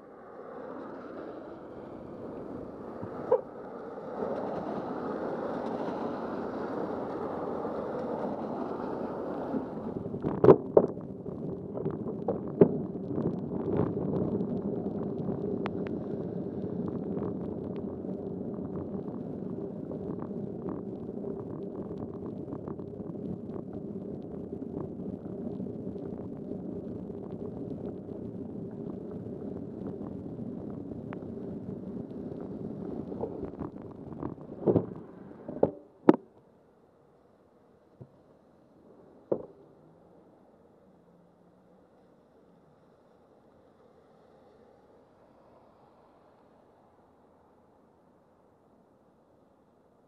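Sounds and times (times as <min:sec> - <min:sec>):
bicycle rolling on wet road: 0:00.1 - 0:35.6.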